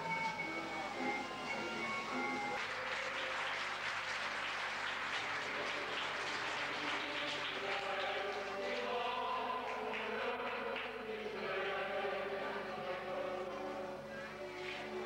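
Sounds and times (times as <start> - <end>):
stage music: 0.0 - 6.1
videotape hiss: 0.0 - 7.5, 12.0 - 15.0
audience applauding: 0.9 - 12.0, 14.4 - 15.0.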